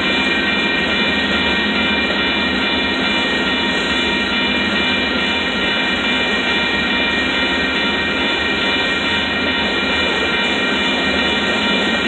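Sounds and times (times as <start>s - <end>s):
freight train wheels rumbling: 0.0s - 12.0s.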